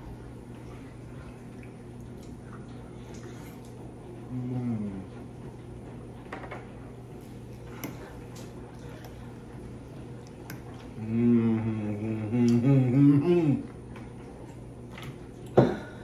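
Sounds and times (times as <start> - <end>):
person humming mm: 4.3 - 5.1, 11.0 - 13.7.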